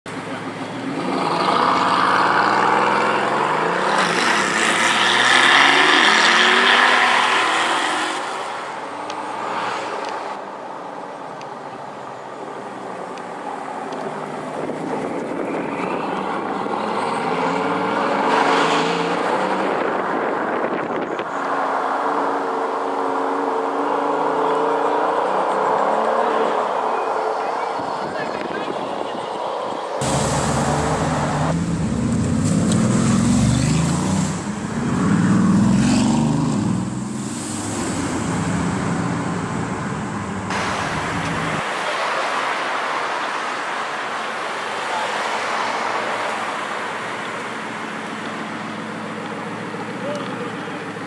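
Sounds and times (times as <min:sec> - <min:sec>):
car engine accelerating hard: 0:00.2 - 0:09.8, 0:30.0 - 0:42.8.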